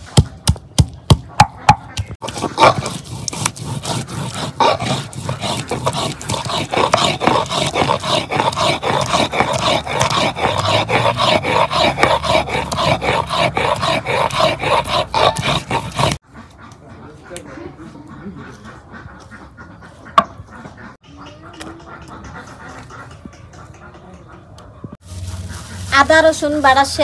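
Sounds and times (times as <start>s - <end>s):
grinding stone rubbing: 2.2s - 16.2s.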